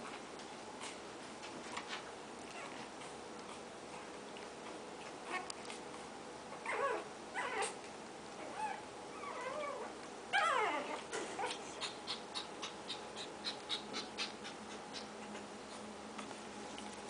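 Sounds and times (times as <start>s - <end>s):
puppies whimpering and yipping: 6.5s - 7.8s, 8.4s - 15.2s.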